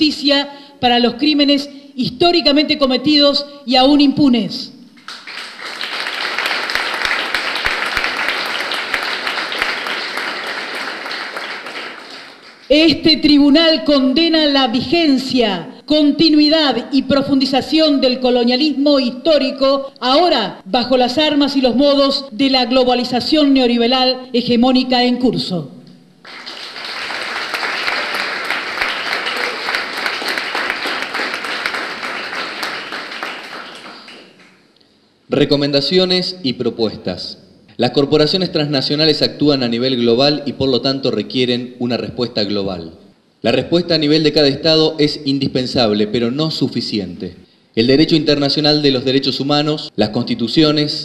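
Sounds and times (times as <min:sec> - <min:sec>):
audience applauding: 0:05.0 - 0:12.7, 0:26.2 - 0:34.6.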